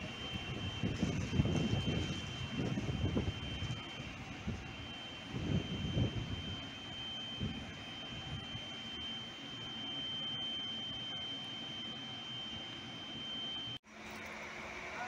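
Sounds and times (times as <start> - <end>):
distant train rumble: 0.0 - 6.5
steady high-pitched tone: 0.0 - 13.8.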